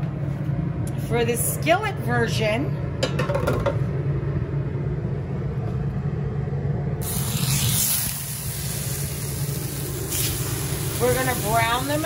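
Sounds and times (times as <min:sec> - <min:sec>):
steady low rumble: 0:00.0 - 0:12.0
meat sizzling in hot oil: 0:07.0 - 0:12.0.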